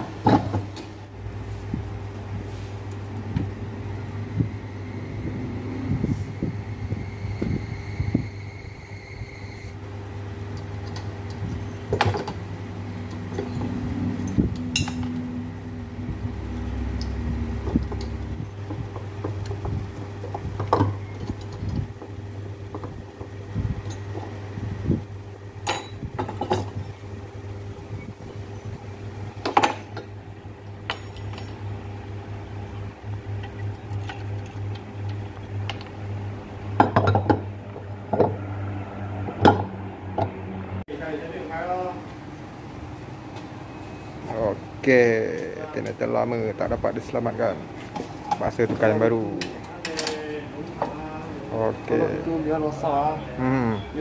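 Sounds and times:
low hum: 0:01.0 - 0:40.9.

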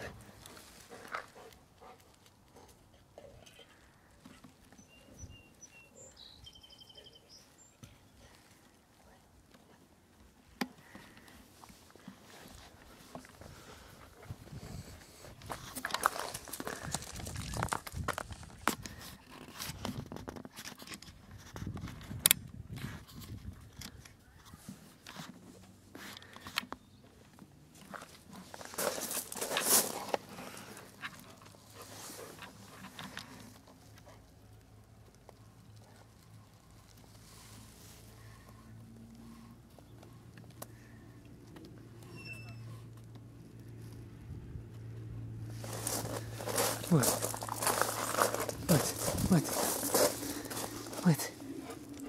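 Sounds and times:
faint bird chirps and trill: 0:04.8 - 0:07.8
footsteps on stone chips: 0:15.4 - 0:18.9, 0:27.9 - 0:30.6, 0:45.5 - 0:52.0.

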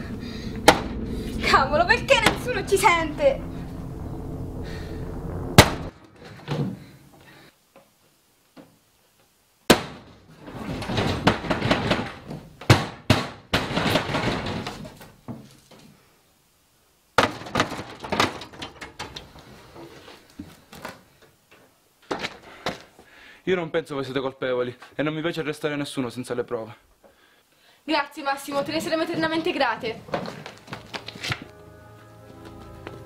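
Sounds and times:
door scraping and rattling: 0:10.4 - 0:12.5, 0:13.6 - 0:15.1, 0:17.3 - 0:20.0.

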